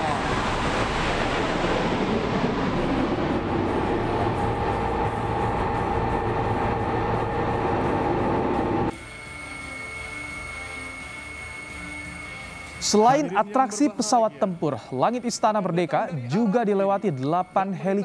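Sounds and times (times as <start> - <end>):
jet engine whine: 0.0 - 18.0
background music: 4.3 - 18.0.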